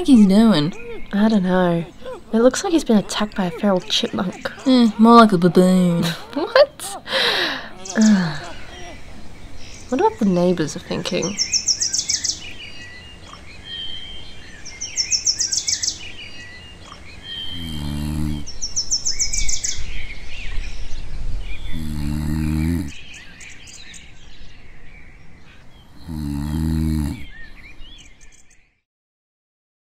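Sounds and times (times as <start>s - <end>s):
birds chirping and trilling: 0.0s - 28.8s
person snoring: 17.5s - 18.5s, 21.7s - 23.0s, 26.0s - 27.3s.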